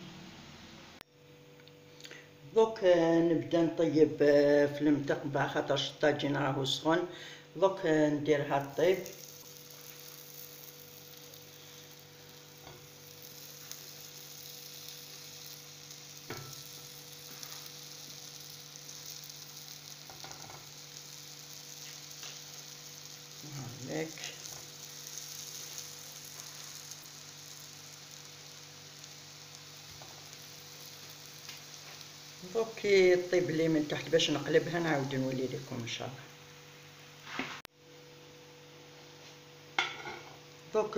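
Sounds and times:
dough sizzling on a griddle: 0:08.3 - 0:37.7, 0:39.1 - 0:40.6
light knocks on griddle: 0:16.3 - 0:16.6, 0:39.8 - 0:40.4.

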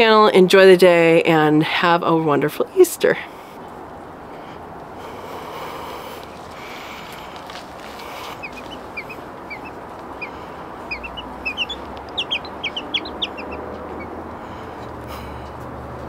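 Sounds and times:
baby chick peeping: 0:06.0 - 0:15.6.

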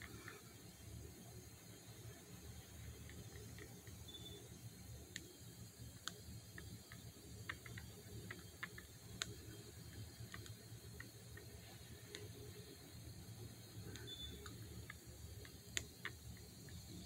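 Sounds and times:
low steady hum: 0:00.0 - 0:17.0
faint small clicks: 0:05.1 - 0:05.4, 0:06.0 - 0:11.5, 0:13.8 - 0:16.9.

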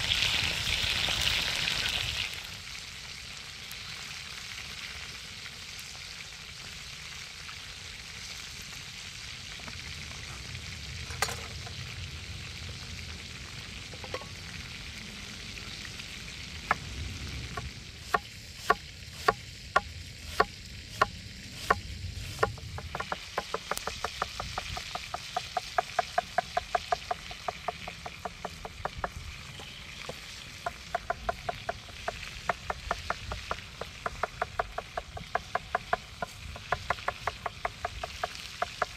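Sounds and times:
sausages sizzling in a pan: 0:00.0 - 0:38.9
knife chopping on wooden board: 0:18.1 - 0:29.2.

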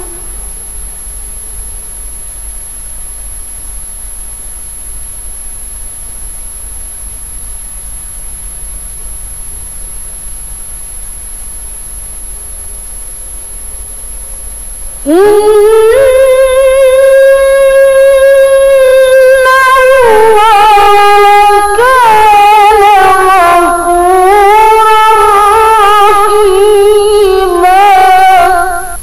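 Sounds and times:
low hum: 0:00.0 - 0:00.9
faint high-pitched whine: 0:00.0 - 0:29.0
recording hiss: 0:00.0 - 0:29.0.

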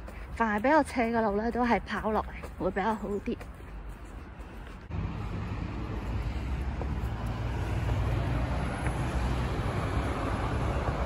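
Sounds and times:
low outdoor rumble: 0:02.2 - 0:11.0.

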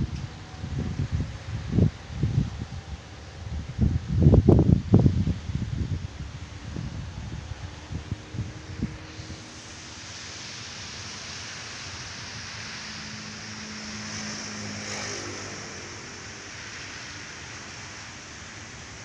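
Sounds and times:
faint motor drone: 0:00.0 - 0:19.0
wind: 0:00.0 - 0:19.0
sea surf: 0:07.4 - 0:19.0.

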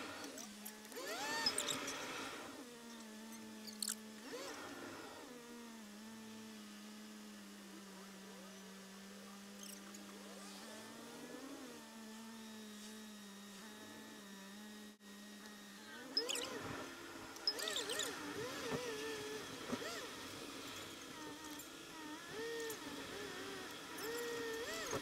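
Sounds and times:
short squeaking glides: 0:01.0 - 0:02.1, 0:16.1 - 0:16.7, 0:17.4 - 0:20.1.

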